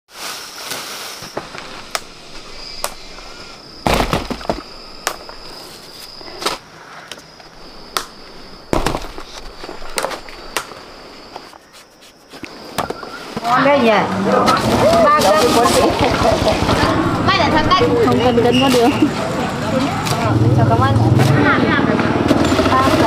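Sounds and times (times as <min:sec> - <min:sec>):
sharp knocks and cracks: 0:03.8 - 0:05.4, 0:07.9 - 0:10.8.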